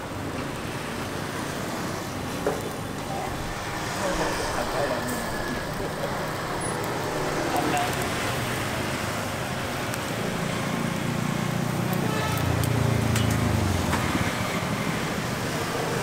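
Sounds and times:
street traffic noise: 0.0s - 16.0s
vehicle passing close by: 3.7s - 16.0s.

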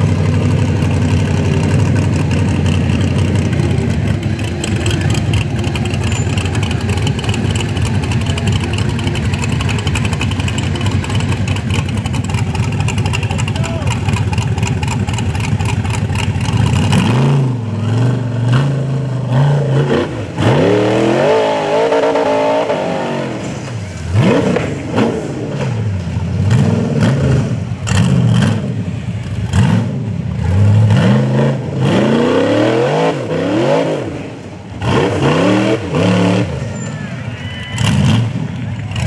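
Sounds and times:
buggy engine revving hard: 0.0s - 36.9s, 37.7s - 39.0s.

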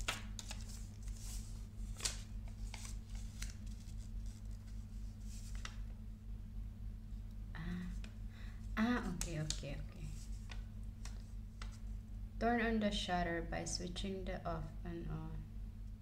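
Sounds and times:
paper rustling: 0.0s - 5.9s
rustles and clicks of handling: 0.0s - 6.0s, 7.2s - 12.0s
steady low hum: 0.0s - 16.0s.

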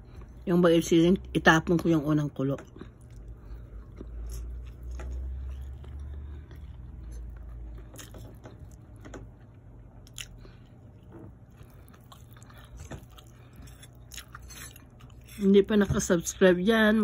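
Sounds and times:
person chewing food: 2.6s - 15.6s.

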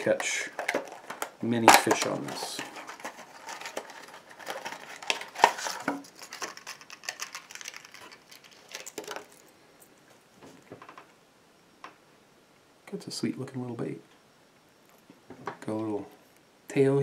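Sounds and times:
plastic packaging crinkling: 0.0s - 10.1s.

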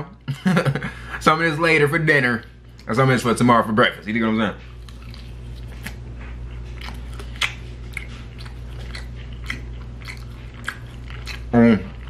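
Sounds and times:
steady low hum: 0.0s - 12.0s
chewing crunchy food: 2.4s - 12.0s.

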